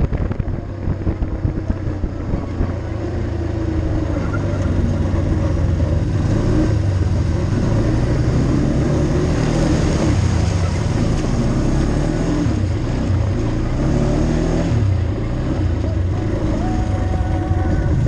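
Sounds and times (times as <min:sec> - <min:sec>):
atv engine running: 0:00.0 - 0:18.0.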